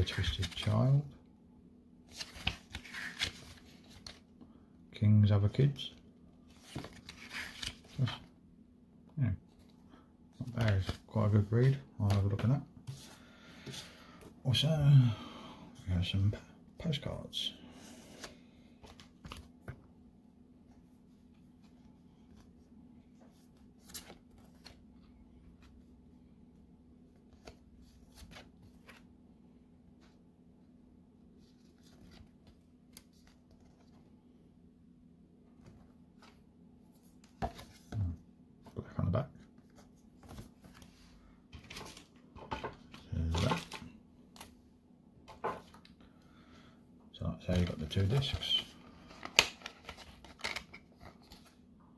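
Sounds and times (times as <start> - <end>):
postcards rustling and flicking: 0.0 - 0.8, 2.1 - 4.3, 6.5 - 8.3, 10.4 - 13.0, 39.6 - 44.6, 47.5 - 51.6
low steady hum: 0.0 - 51.9.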